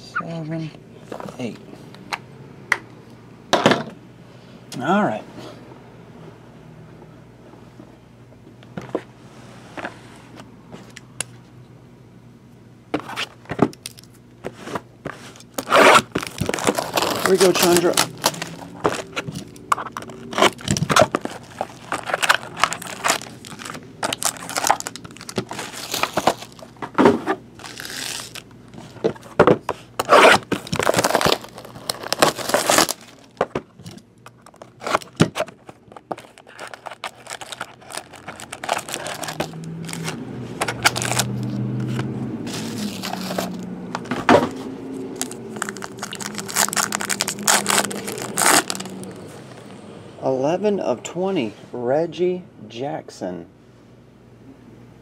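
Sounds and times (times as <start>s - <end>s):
card packs crinkling and tearing: 13.0s - 49.8s.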